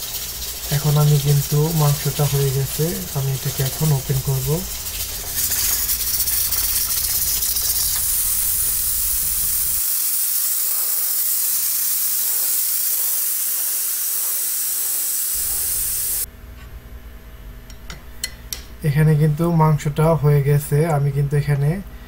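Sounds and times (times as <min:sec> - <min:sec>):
steam hissing from valve: 0:00.0 - 0:16.3.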